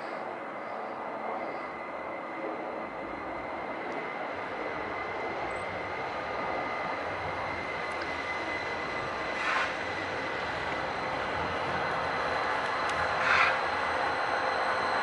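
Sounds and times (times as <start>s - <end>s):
tram passing on rails: 0.0s - 15.0s.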